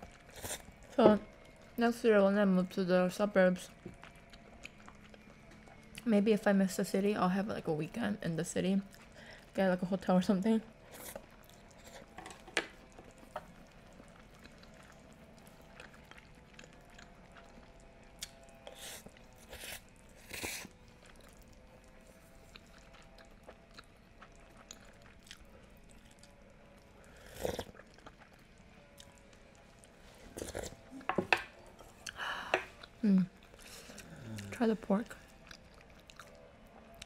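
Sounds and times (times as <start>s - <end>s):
soft chewing: 0.0s - 1.8s, 2.7s - 6.1s, 8.8s - 9.6s, 10.4s - 37.0s
slurping noodles and soup: 0.3s - 0.8s, 18.6s - 20.7s, 27.0s - 27.8s, 30.2s - 30.8s.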